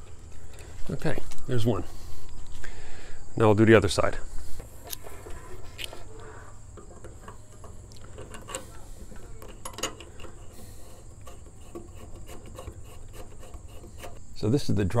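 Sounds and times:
metallic clicks and scrapes: 4.4s - 14.4s.

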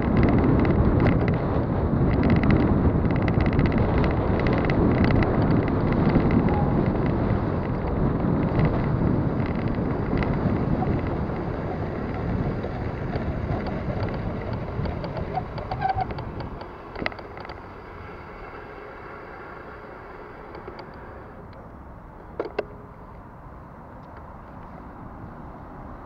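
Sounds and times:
wind rushing over microphone: 0.0s - 18.7s
bicycle drivetrain clicks and rattles: 0.0s - 22.8s
bicycle rolling rumble: 0.0s - 26.0s.

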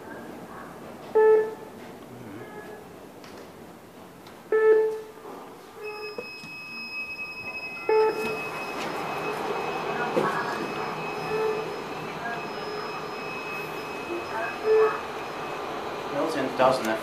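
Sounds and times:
electronic chime: 5.8s - 16.4s
high-pitched whine: 7.1s - 17.0s.

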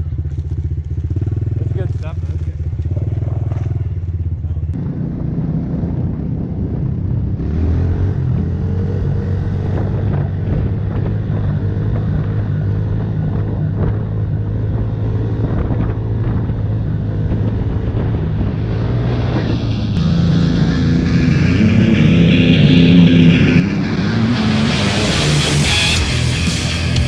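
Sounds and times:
motorbike engine running: 0.0s - 27.0s
wind buffeting microphone: 2.2s - 22.6s.

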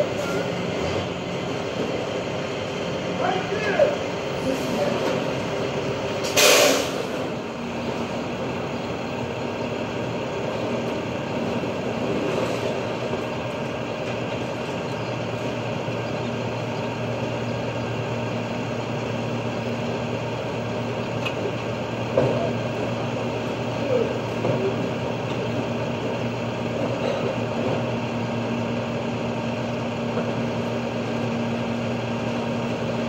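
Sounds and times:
garbage truck diesel engine running: 0.0s - 33.0s
short loud hiss: 6.2s - 7.1s.

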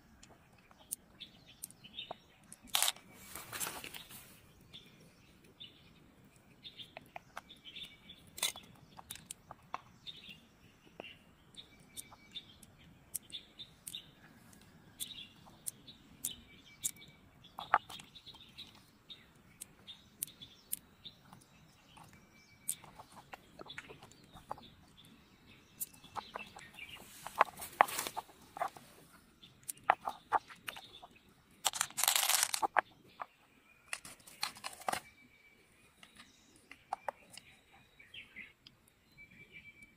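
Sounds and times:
birds chirping: 0.0s - 39.9s
clicks of pearls and shell: 0.2s - 4.1s, 8.3s - 9.9s, 11.9s - 18.8s, 29.6s - 35.1s
rustling: 2.6s - 4.5s, 26.2s - 29.2s, 31.6s - 32.8s.

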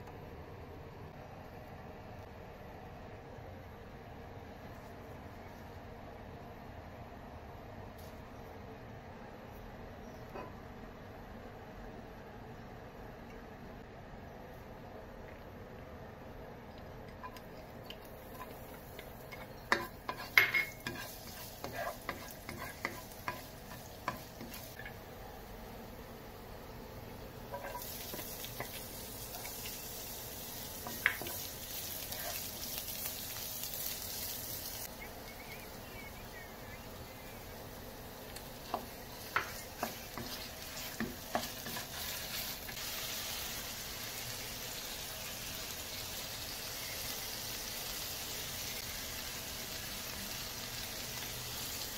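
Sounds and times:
meat sizzling in a pan: 17.2s - 25.5s, 27.1s - 35.0s, 37.0s - 51.9s
spatula scraping a pan: 18.2s - 24.9s, 27.5s - 28.8s, 39.2s - 42.8s.

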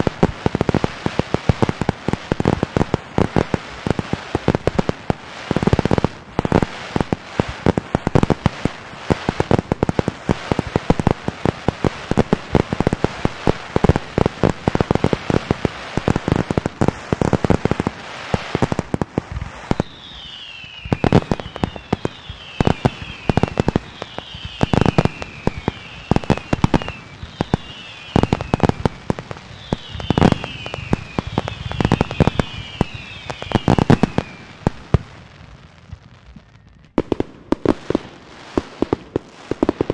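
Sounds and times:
fireworks bangs and cracks: 0.0s - 39.9s
falling firework whistles: 11.8s - 35.0s.

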